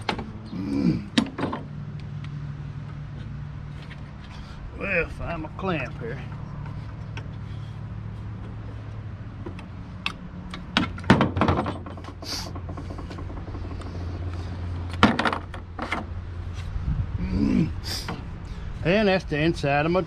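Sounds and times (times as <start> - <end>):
wooden boards knocking: 10.7 - 13.6, 14.9 - 16.1.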